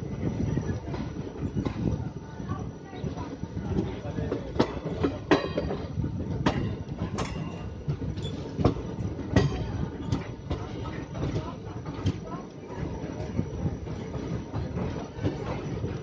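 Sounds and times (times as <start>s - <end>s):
train running rumble: 0.0s - 16.0s
train wheels clattering over joints: 0.0s - 16.0s.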